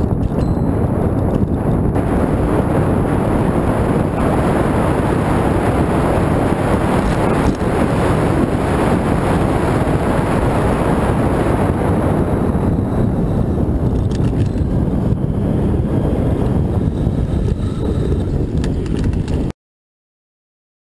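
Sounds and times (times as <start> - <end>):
tyre noise on asphalt: 0.0 - 19.5
wind buffeting microphone: 0.0 - 19.5.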